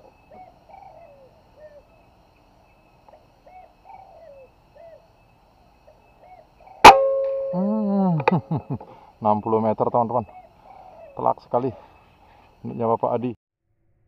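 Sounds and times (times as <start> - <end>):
small birds chirping: 0.0 - 6.9, 7.5 - 13.3
air rifle shot: 6.8 - 7.5
steady ringing tone: 6.8 - 8.7.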